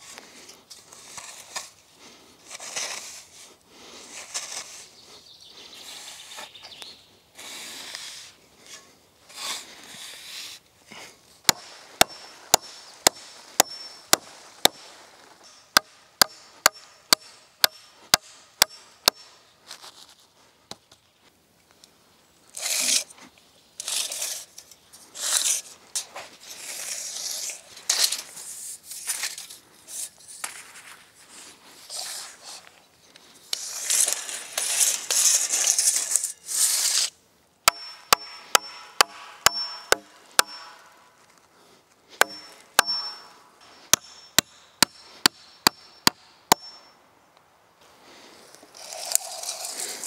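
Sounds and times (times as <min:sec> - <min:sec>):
rustling and scraping: 0:00.0 - 0:05.2, 0:07.4 - 0:18.2, 0:18.8 - 0:21.4, 0:22.6 - 0:37.2, 0:40.0 - 0:46.9, 0:48.1 - 0:50.0
hammer striking with metallic ring: 0:11.5 - 0:14.8, 0:15.4 - 0:19.4, 0:37.7 - 0:41.0, 0:42.2 - 0:47.0.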